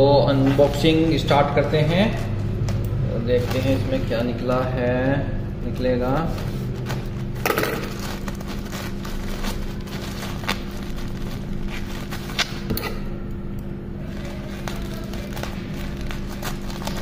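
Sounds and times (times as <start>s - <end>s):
steady low hum: 0.0s - 17.0s
plastic mailer crinkling: 6.2s - 12.6s, 14.0s - 17.0s
scissors cutting plastic: 14.0s - 17.0s.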